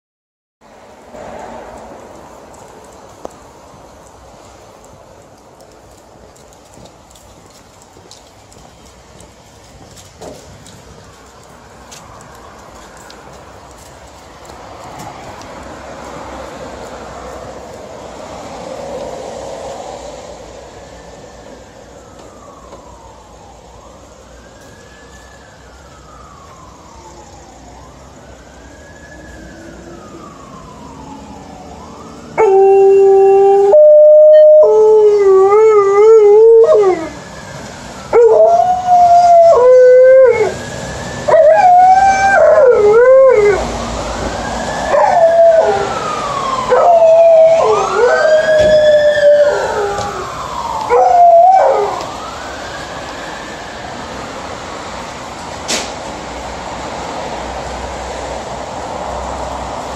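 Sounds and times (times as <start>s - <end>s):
siren wailing: 20.8s - 54.6s
dog howling: 32.4s - 37.2s, 41.3s - 43.7s, 44.9s - 46.0s, 46.6s - 52.1s.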